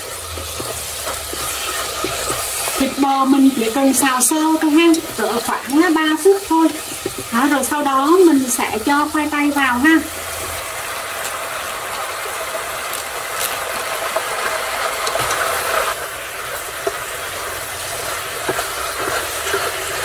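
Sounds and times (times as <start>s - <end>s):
beef sizzling in a frying pan: 0.0s - 20.0s
utensil clicking against pan: 0.3s - 5.7s.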